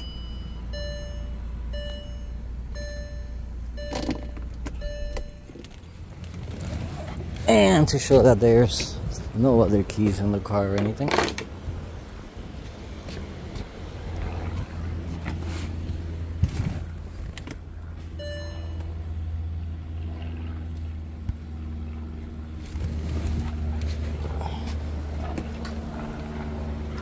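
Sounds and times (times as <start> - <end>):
short electronic car chime: 0.0 - 5.8, 18.2 - 19.0
car engine low hum: 0.0 - 27.0.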